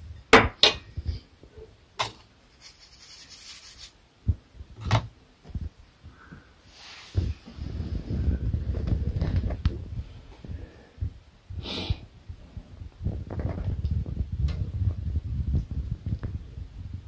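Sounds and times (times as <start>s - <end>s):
short hissy breath: 11.6s - 12.1s.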